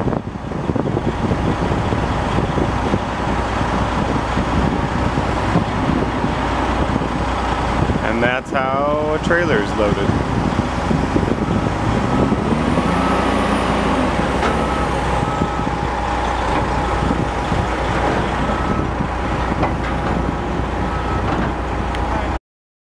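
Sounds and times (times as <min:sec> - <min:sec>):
diesel truck engines running: 0:00.0 - 0:22.4
reversing alarm beeps: 0:11.2 - 0:17.3, 0:18.4 - 0:19.4, 0:20.2 - 0:21.4.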